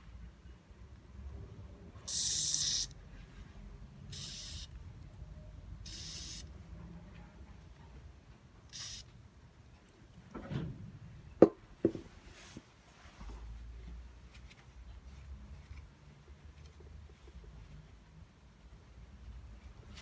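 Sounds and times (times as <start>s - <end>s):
aerosol spray hissing: 2.1s - 2.9s, 4.1s - 4.7s, 5.9s - 6.5s, 8.7s - 9.1s.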